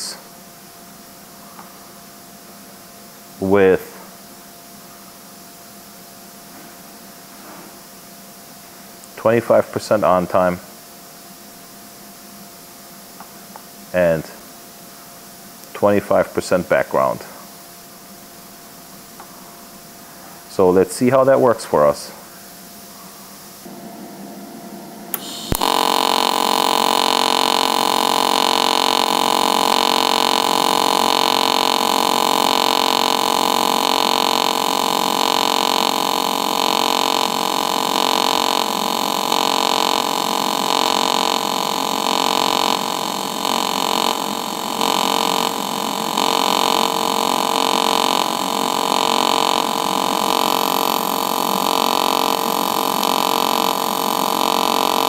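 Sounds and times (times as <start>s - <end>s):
welding arc buzzing: 23.6s - 55.0s.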